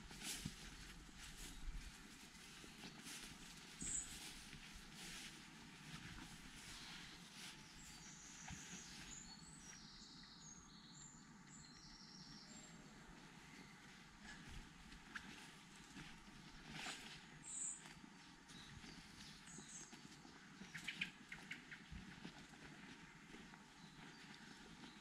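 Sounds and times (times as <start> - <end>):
faint footsteps on grass: 0.0 - 10.4, 11.6 - 25.0
small bird singing: 2.8 - 4.4, 6.0 - 25.0.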